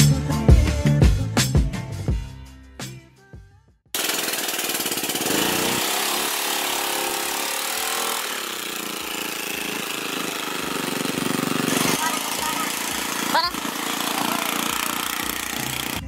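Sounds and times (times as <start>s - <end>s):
background music: 0.0s - 3.6s
go-kart engine revving: 4.0s - 16.0s.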